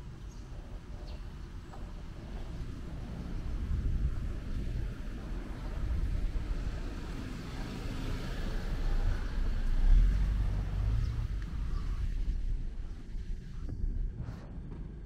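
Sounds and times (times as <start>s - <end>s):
car passing: 2.1s - 13.7s.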